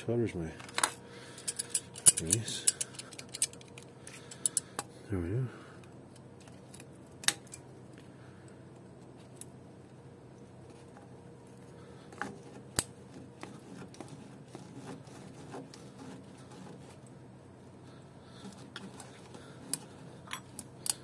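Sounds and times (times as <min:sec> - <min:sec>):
faint steady hum: 0:00.0 - 0:21.0
pliers clicking and scraping on metal: 0:00.7 - 0:04.6.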